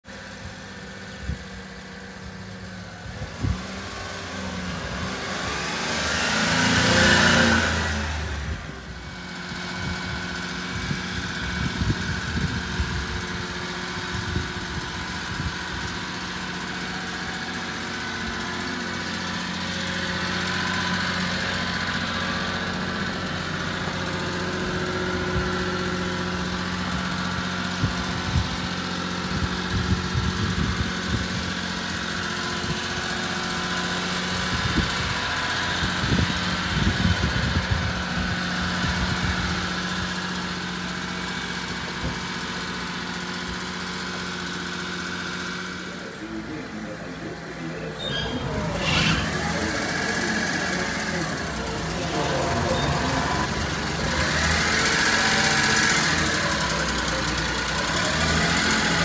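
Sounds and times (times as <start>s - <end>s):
small truck engine idling: 0.0s - 59.0s.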